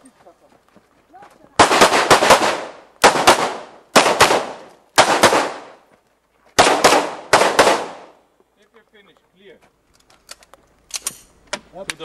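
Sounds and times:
pistol shots with echo: 0:01.6 - 0:05.8, 0:06.6 - 0:08.2.

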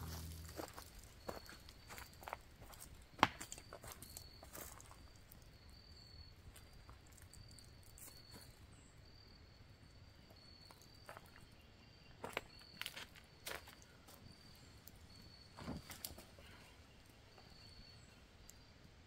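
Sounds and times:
insect trilling: 0:00.0 - 0:02.4
footsteps on dry leaves and gravel: 0:00.0 - 0:05.0.

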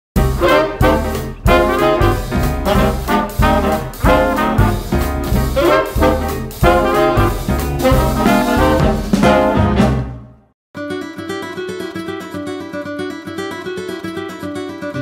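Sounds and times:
brass-led swing music: 0:00.2 - 0:10.5.

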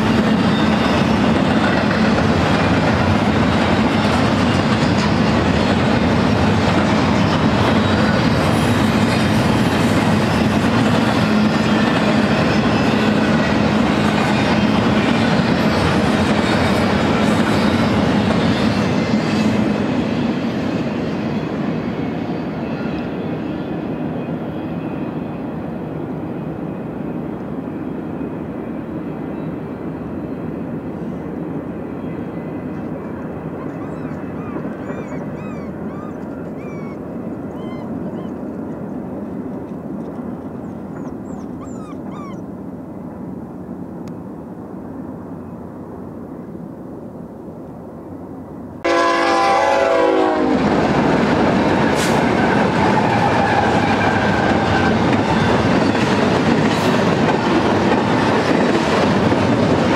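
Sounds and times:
locomotive engine and wheel noise: 0:00.0 - 0:48.8
freight train rumbling: 0:00.0 - 0:59.9
train horn chord: 0:48.8 - 0:50.8.

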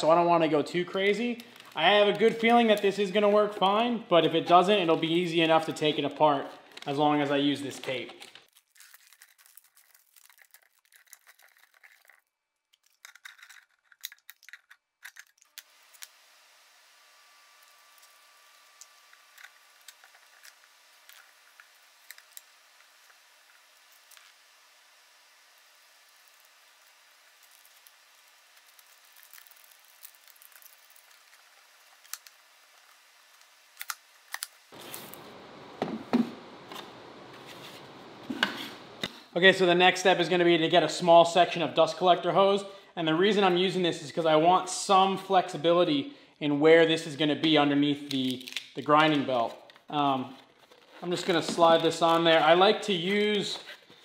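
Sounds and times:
foil tape crinkling: 0:04.6 - 0:16.2, 0:17.6 - 0:35.8, 0:48.0 - 0:54.0
faint steady hiss: 0:17.6 - 0:48.2.

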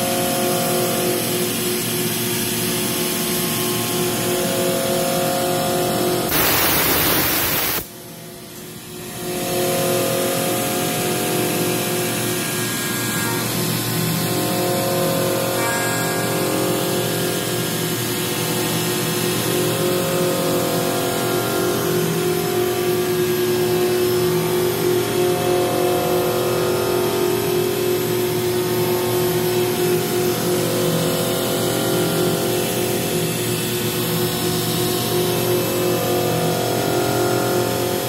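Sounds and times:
metal cutting noise: 0:06.3 - 0:07.9.

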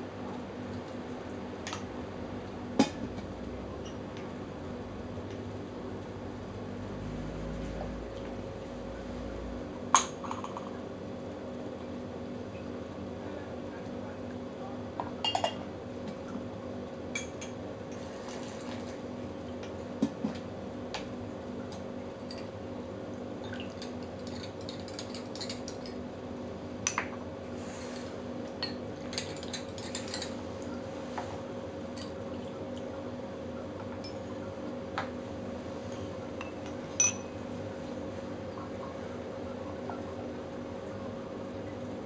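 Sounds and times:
steady low hum: 0:00.0 - 0:42.0
porcelain cups clinking: 0:15.2 - 0:15.6, 0:36.4 - 0:37.3.

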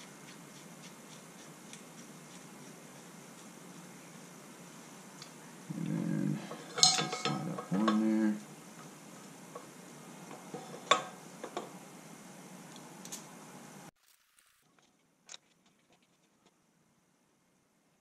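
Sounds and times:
metal clinks and scrapes: 0:06.5 - 0:08.0.

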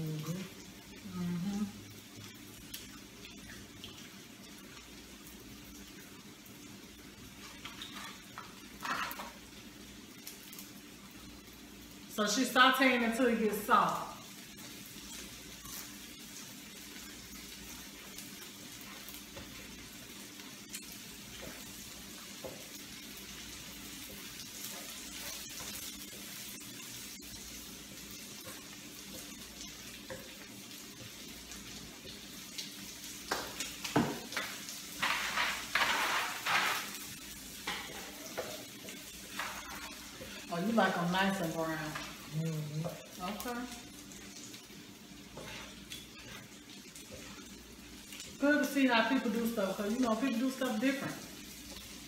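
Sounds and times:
onions sizzling in oil: 0:00.0 - 0:52.0
stirring in a pan: 0:07.2 - 0:09.4, 0:14.4 - 0:52.0.

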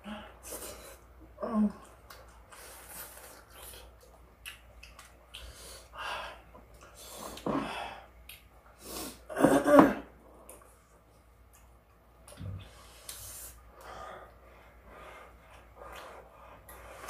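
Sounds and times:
person eating with sniffs and slurps: 0:02.4 - 0:04.1, 0:12.7 - 0:13.6.

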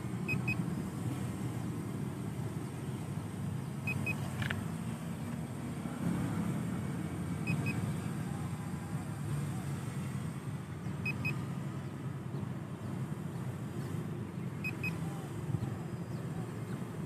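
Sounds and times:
engine low rumble: 0:00.0 - 0:17.0
high double beep: 0:00.3 - 0:00.6, 0:07.4 - 0:07.8, 0:11.0 - 0:11.4, 0:14.6 - 0:15.0.

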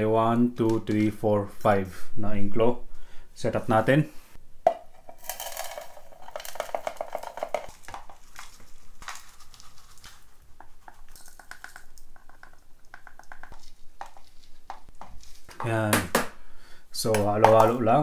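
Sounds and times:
grains pouring into plastic containers: 0:05.2 - 0:15.5.

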